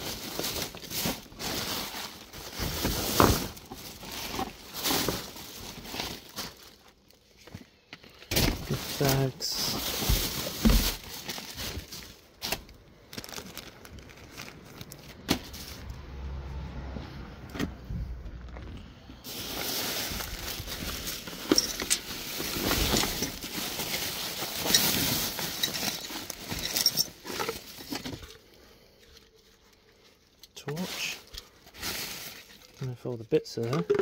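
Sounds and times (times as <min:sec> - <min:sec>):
plastic bags rustling: 0:00.0 - 0:16.4, 0:18.3 - 0:34.0
knocks and clicks of items: 0:33.6 - 0:34.0.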